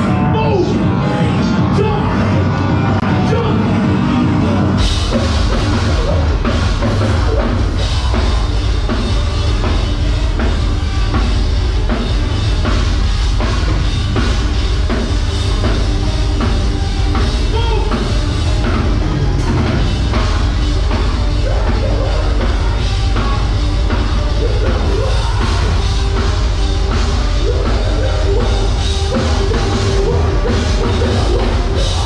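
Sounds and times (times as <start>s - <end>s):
heavy metal band playing live: 0.0s - 32.0s.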